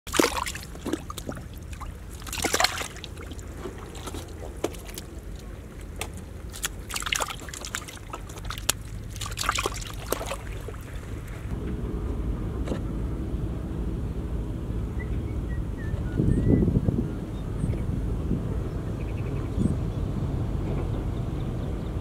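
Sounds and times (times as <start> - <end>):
fish splashing in shallow water: 0.0 - 11.5
muddy water trickling and sloshing: 0.0 - 11.6.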